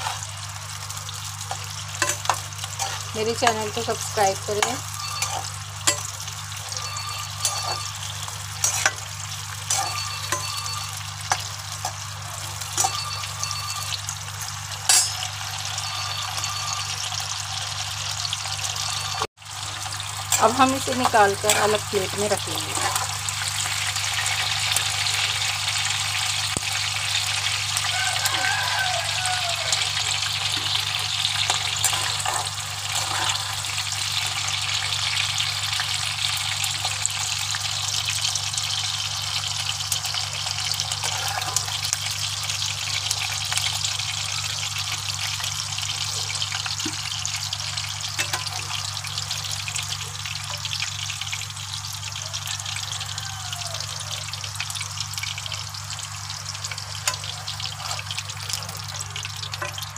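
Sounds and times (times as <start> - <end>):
pepper pieces sizzling in oil: 0.0 - 59.9
steel spoon in pan: 1.2 - 17.3, 19.8 - 25.3, 27.4 - 35.9, 48.1 - 50.8, 56.6 - 59.9.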